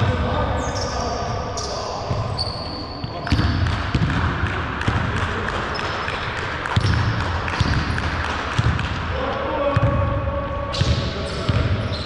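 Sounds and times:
basketball bouncing on hardwood: 0:06.7 - 0:08.0.

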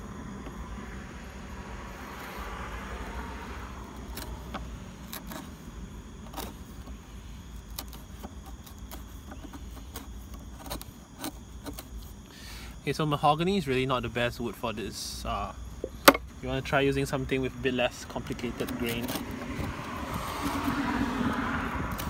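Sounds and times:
steady low hum: 0:00.0 - 0:22.0
chisel shaving wood: 0:03.9 - 0:12.2, 0:17.9 - 0:22.0
chisel clicking on grain: 0:07.6 - 0:12.1, 0:18.1 - 0:20.8.

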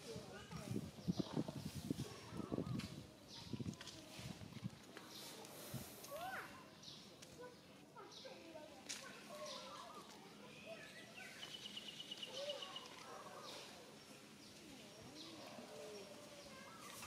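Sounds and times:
bird chirps: 0:10.6 - 0:13.7.

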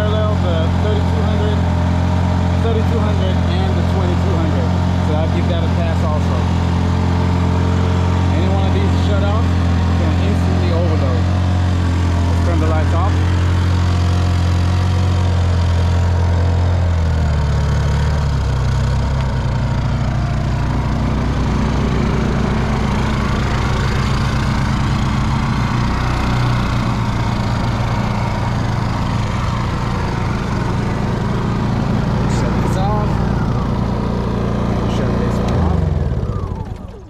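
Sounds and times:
generators running: 0:00.0 - 0:37.0.

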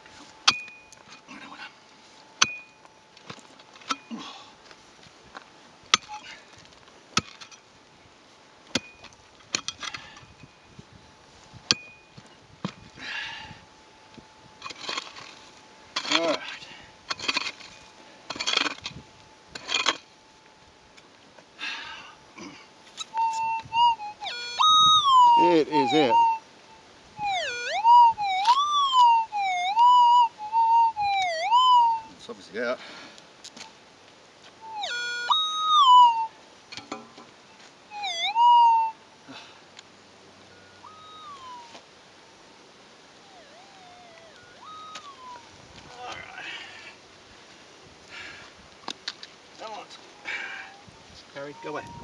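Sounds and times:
steel pick striking stony ground: 0:00.4 - 0:01.2, 0:02.4 - 0:04.1, 0:05.9 - 0:06.4, 0:07.1 - 0:07.6, 0:08.7 - 0:10.3, 0:11.6 - 0:12.8, 0:14.6 - 0:20.1
metal detector warbling tone: 0:23.0 - 0:26.4, 0:27.2 - 0:32.1, 0:34.6 - 0:36.3, 0:37.9 - 0:39.0, 0:40.5 - 0:41.8, 0:43.2 - 0:46.1, 0:51.4 - 0:52.0.

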